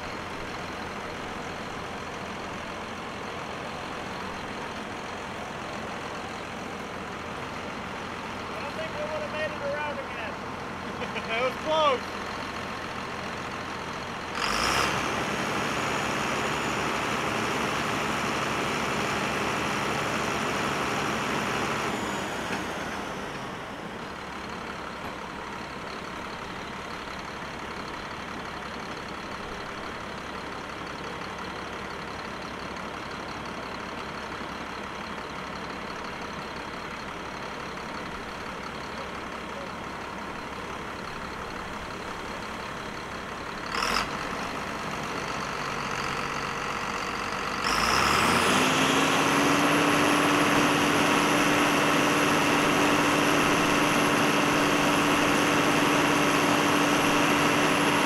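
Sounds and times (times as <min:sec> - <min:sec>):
tractor engine idling and revving: 0:00.0 - 0:58.0.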